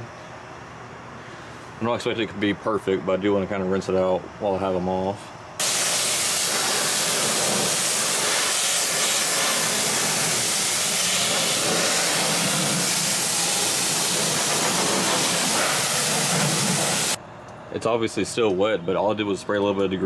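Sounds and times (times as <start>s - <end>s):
pressure washer spraying water: 5.6s - 17.2s.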